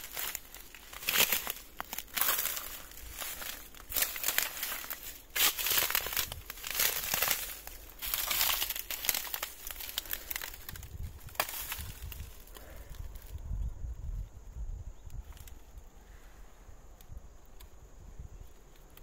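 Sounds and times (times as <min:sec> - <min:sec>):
footsteps crunching on dry leaves: 0:00.0 - 0:13.3.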